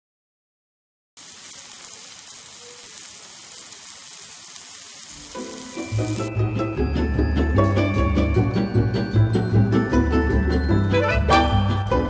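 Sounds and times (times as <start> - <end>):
meat sizzling on a griddle: 1.2 - 6.3
music: 5.3 - 12.0.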